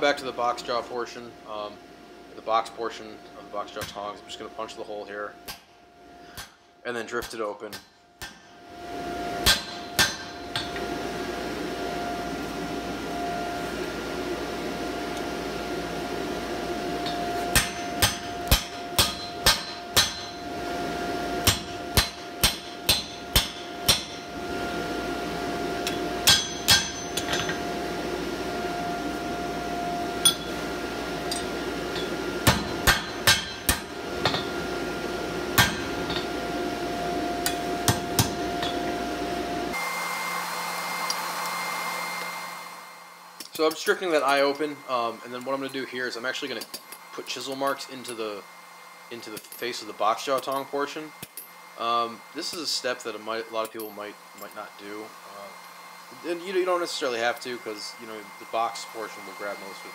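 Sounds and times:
steady hum: 0.0 - 59.9
hammer striking punch on steel: 7.2 - 8.5, 9.4 - 10.8, 17.0 - 20.4, 21.4 - 24.3, 25.8 - 27.6, 31.3 - 34.6, 35.6 - 36.3, 37.4 - 38.8.

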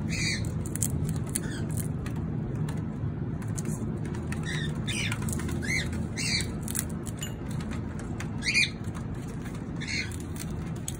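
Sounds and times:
steady low hum: 0.0 - 10.9
cockatiel chirping: 0.1 - 0.6, 8.4 - 8.8, 9.8 - 10.3.

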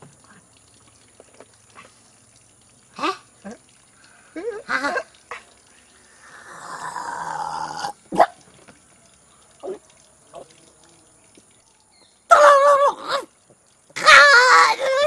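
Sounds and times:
man howling: 12.3 - 13.3.

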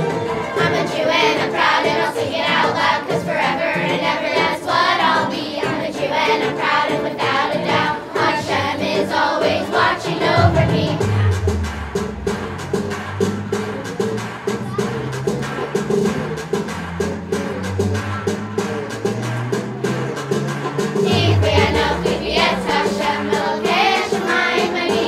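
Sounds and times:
children's choir singing: 0.0 - 14.3, 21.0 - 25.0
instrumental accompaniment: 5.8 - 24.7
deep bass sound: 10.3 - 13.9.

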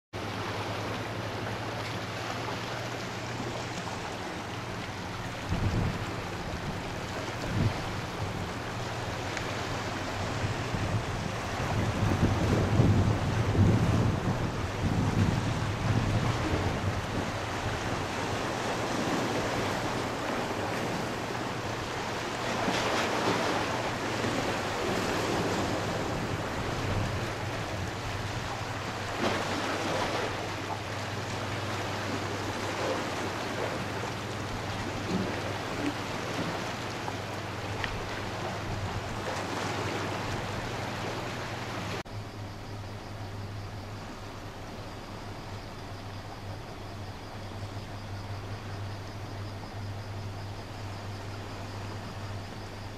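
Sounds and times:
waves washing on rocks: 0.2 - 42.0
wind on microphone: 5.2 - 30.5.

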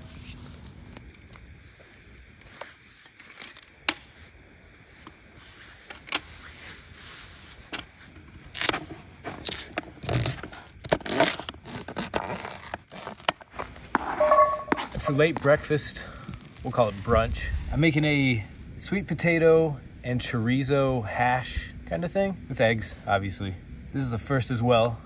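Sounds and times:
plastic bag crinkling: 8.3 - 14.0, 14.6 - 18.5.

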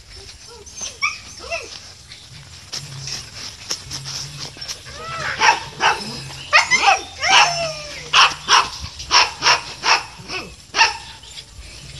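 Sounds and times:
dog barking and yipping: 5.0 - 11.3.

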